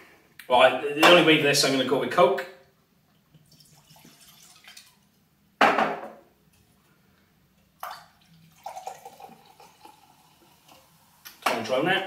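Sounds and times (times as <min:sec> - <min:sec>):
cola pouring with fizz: 0:03.2 - 0:05.2, 0:07.8 - 0:11.4.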